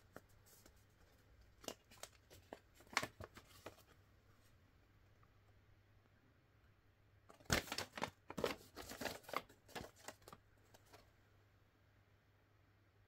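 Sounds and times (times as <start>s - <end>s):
card box rustling and clicking: 7.3s - 11.1s.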